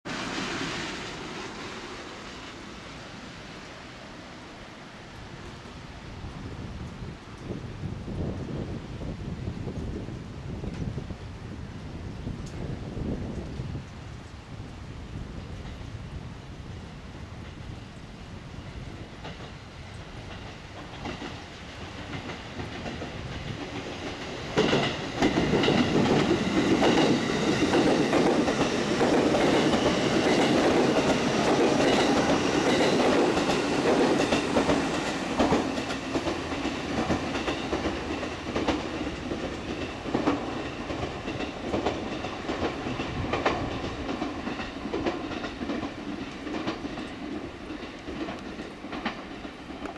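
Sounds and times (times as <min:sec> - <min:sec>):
train passing through station: 0:00.0 - 0:49.9
wheels clicking over rail joints: 0:19.0 - 0:49.9.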